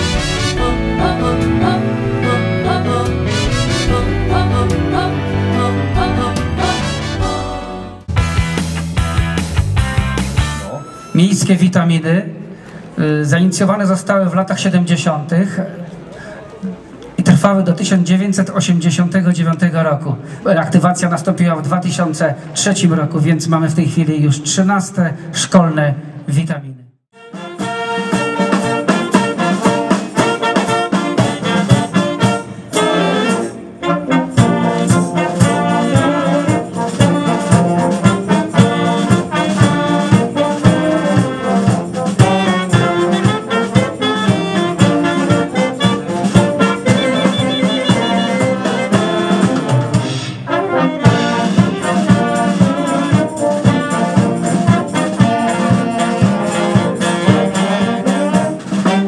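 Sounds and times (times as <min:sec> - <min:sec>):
brass and wind band playing: 0:00.0 - 0:09.3, 0:27.1 - 0:59.0.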